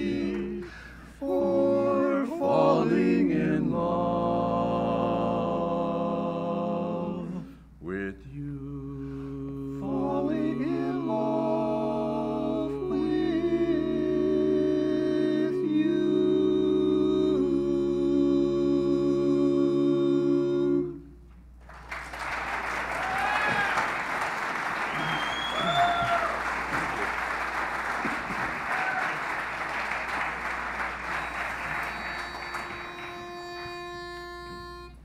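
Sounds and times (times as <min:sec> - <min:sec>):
men singing in close harmony: 0:00.0 - 0:21.0
applause: 0:21.6 - 0:33.2.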